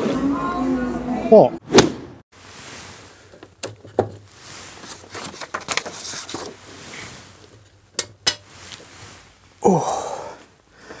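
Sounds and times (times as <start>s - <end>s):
paper rustling: 2.9s - 7.8s.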